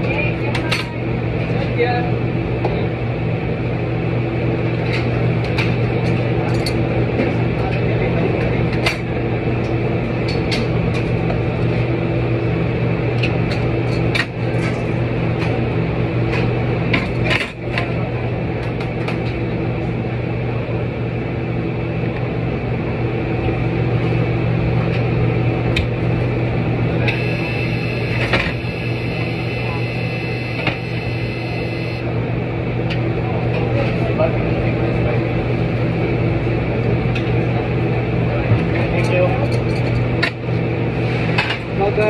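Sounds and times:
kitchen machinery humming: 23.4 - 35.8.

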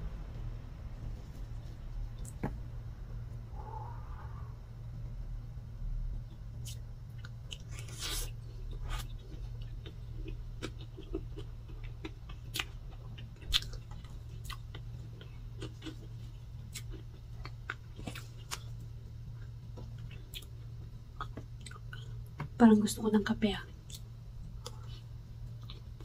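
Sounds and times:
moist chewing and lip smacks: 6.6 - 18.7.

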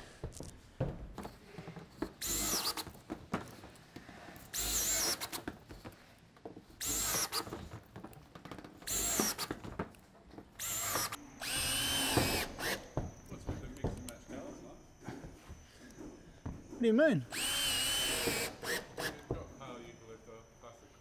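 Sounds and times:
drill driving screws into steel: 2.2 - 3.0, 4.5 - 5.5, 6.8 - 7.8, 8.8 - 9.6, 10.6 - 13.0, 17.3 - 19.3.

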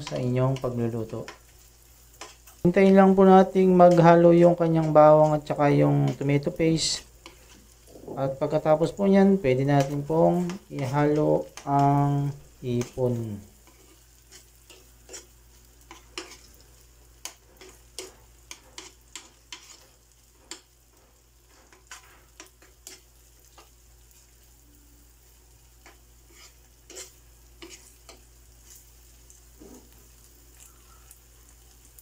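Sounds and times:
faint sizzle: 0.0 - 32.0
metal spoon scraping frying pan: 2.1 - 2.6, 13.6 - 16.6, 17.2 - 20.7, 25.8 - 28.8.

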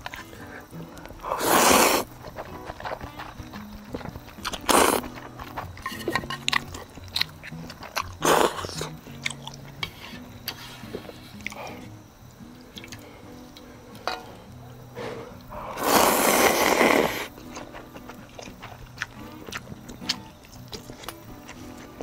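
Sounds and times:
small clicks of eating: 0.0 - 1.3, 2.0 - 14.7, 17.2 - 22.0
background music: 0.0 - 22.0
chewing: 0.0 - 22.0
noodles slurped loudly: 1.3 - 5.6, 15.6 - 17.4.

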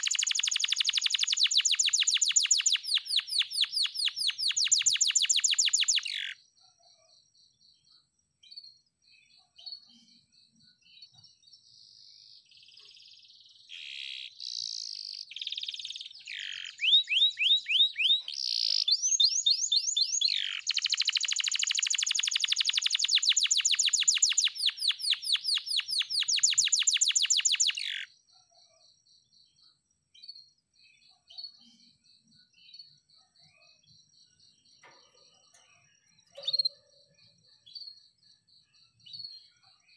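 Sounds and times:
canary singing trills: 0.0 - 7.1, 12.2 - 28.8, 31.0 - 39.9.

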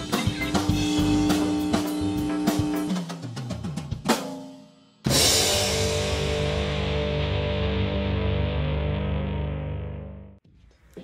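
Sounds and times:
distorted electric guitar chord: 0.0 - 3.0, 5.1 - 10.4
rock drum beats: 0.0 - 9.4.

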